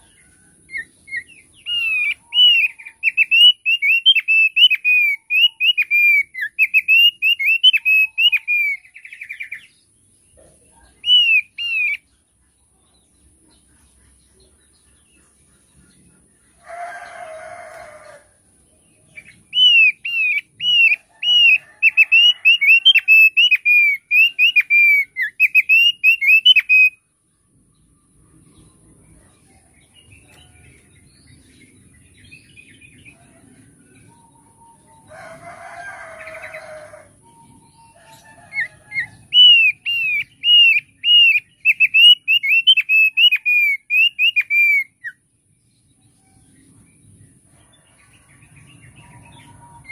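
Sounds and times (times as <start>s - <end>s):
bird singing whistled notes: 0.0s - 9.7s, 10.9s - 12.1s, 19.2s - 27.0s, 37.2s - 45.2s.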